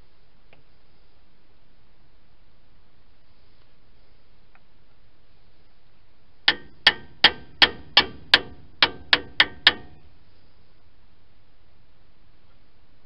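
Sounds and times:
hand tool metallic clicks: 6.5 - 10.0.

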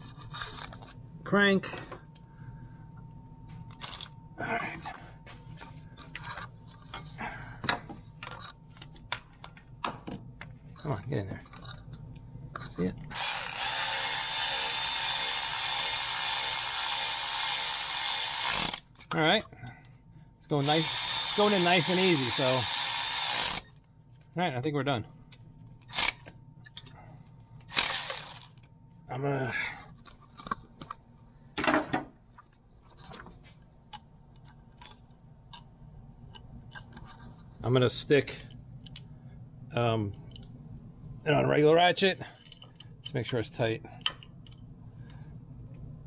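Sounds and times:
electric ratchet running: 13.1 - 18.9, 20.6 - 23.7, 27.7 - 28.6.

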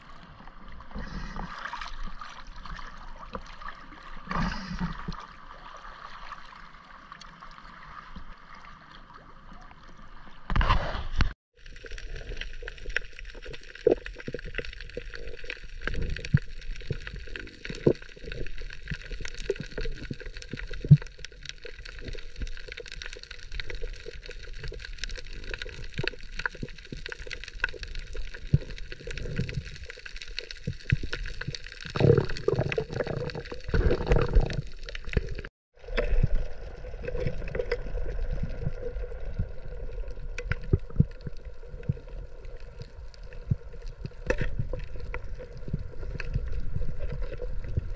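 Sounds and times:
water splashing and bubbling: 0.0 - 47.9
small clicks and crackles: 7.1 - 47.9.

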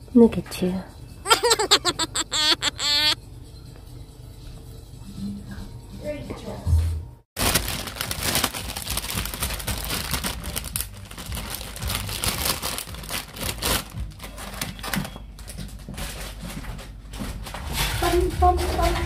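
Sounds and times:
plastic packaging crinkling: 7.4 - 15.0.

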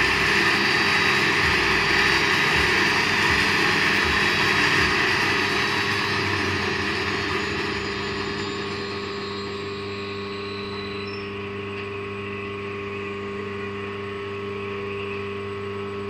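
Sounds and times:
band saw cutting polystyrene: 0.0 - 9.5
steady motor hum: 0.0 - 16.0.

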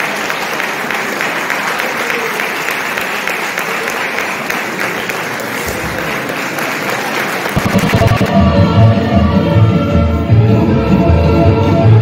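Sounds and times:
audience applauding: 0.0 - 8.4
music: 7.6 - 12.0.

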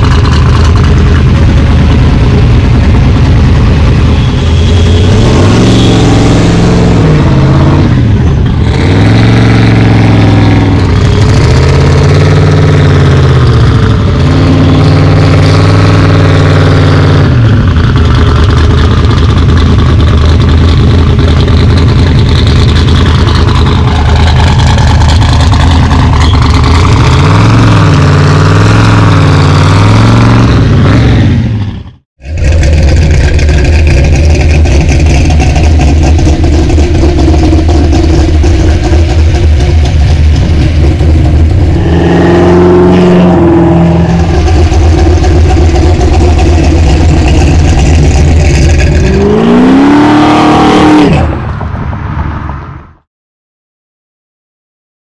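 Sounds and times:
car exhaust idling: 0.0 - 14.2, 17.6 - 28.0, 32.2 - 49.4
engine throttle blips: 0.0 - 52.6.

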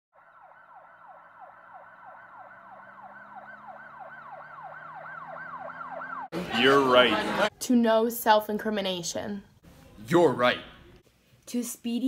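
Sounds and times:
siren yelping: 0.2 - 7.4.

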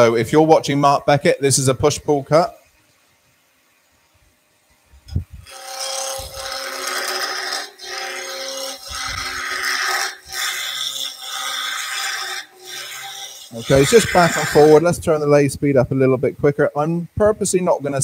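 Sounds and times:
chisel cutting wood on lathe: 5.4 - 14.9.

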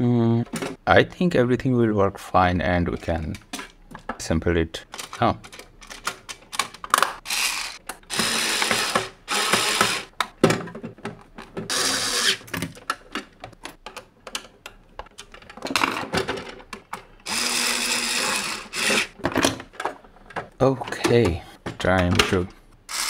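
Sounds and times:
clicks and handling knocks: 2.9 - 7.2, 8.6 - 11.7, 12.4 - 17.2, 18.9 - 22.7
electric screwdriver driving screws: 7.2 - 10.1, 11.7 - 12.4, 17.2 - 19.1.

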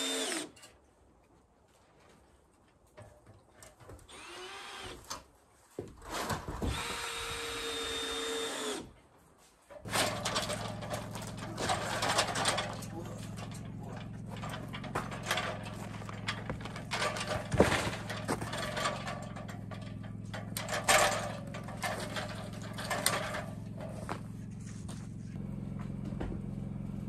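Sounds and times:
metal ladder clanking and rattling: 9.7 - 25.3.

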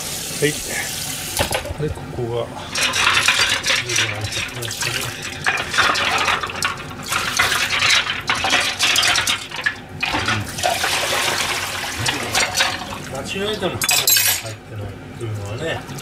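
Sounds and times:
dishes clinking: 2.6 - 13.0, 13.7 - 14.6
water splashing in sink: 2.6 - 14.1, 15.4 - 16.0.

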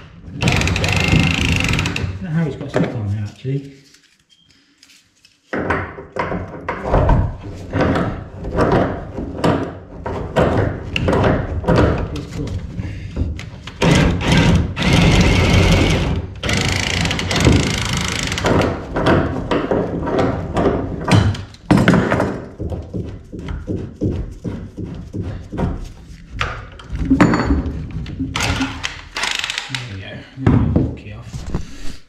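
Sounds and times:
loud rasping noise: 0.0 - 2.2, 13.7 - 18.6
tool knocking and clunking on pipe: 0.0 - 3.0, 5.5 - 29.7.

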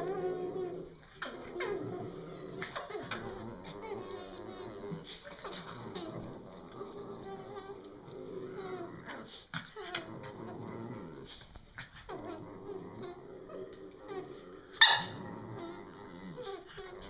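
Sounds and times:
dogs growling: 0.0 - 17.0
dog yip: 14.8 - 15.1.

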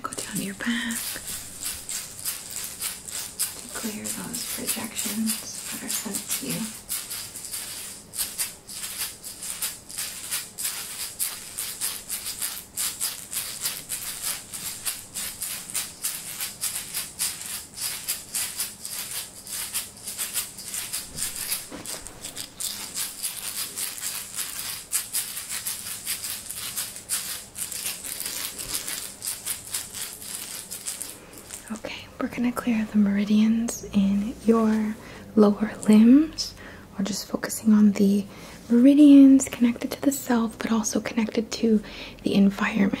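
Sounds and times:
handheld rattle shaken: 0.1 - 31.8.

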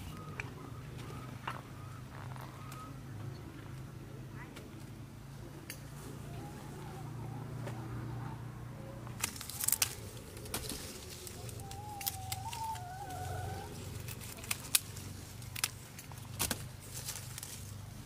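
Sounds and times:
wavering pitched call: 11.3 - 13.8.

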